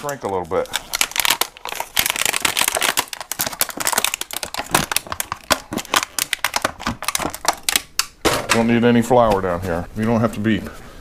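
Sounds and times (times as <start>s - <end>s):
plastic bag crinkling: 0.0s - 8.1s.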